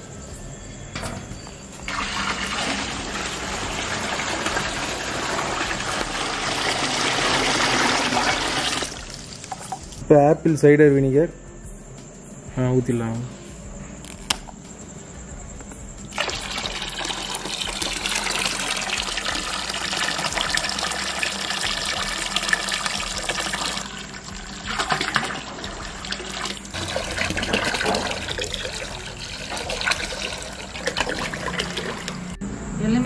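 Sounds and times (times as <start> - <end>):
liquid pouring into vessel: 1.9 - 9.8, 16.1 - 32.3.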